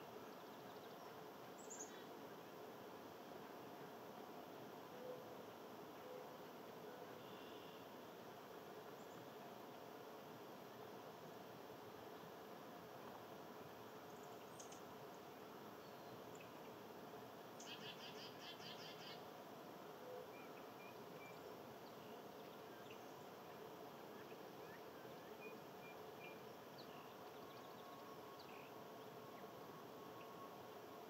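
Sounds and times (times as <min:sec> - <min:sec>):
faint high chirps: 0:24.2 - 0:30.7.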